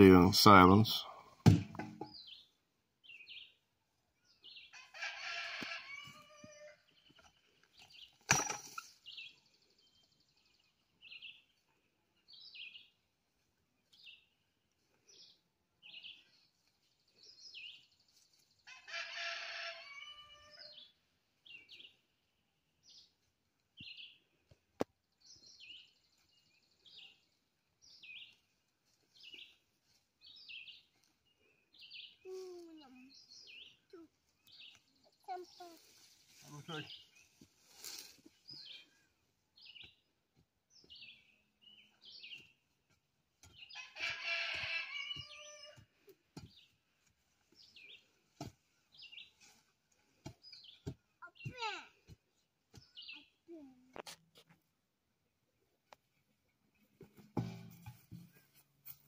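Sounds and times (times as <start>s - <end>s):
rooster crowing: 4.8s - 6.8s, 18.7s - 20.8s, 43.8s - 45.8s.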